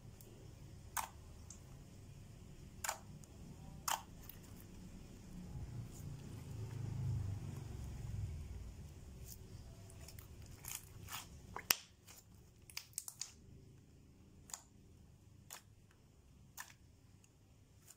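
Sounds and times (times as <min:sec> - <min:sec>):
slime squelching clicks and pops: 0:03.8 - 0:04.1.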